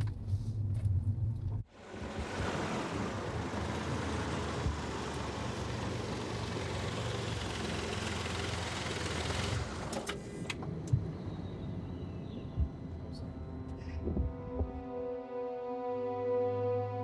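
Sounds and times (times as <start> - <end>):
low engine hum: 0.0 - 15.0
rush of traffic: 1.6 - 12.2.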